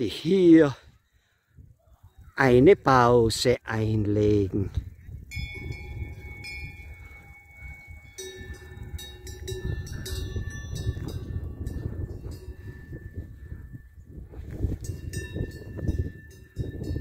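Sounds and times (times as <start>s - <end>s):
steady low rumble: 4.8s - 17.0s
cowbells clanking: 5.3s - 13.9s, 14.7s - 17.0s.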